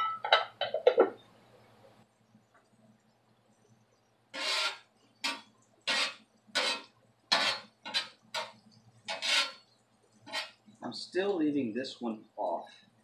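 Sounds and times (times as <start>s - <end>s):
metal spatula scraping griddle: 4.4s - 10.6s.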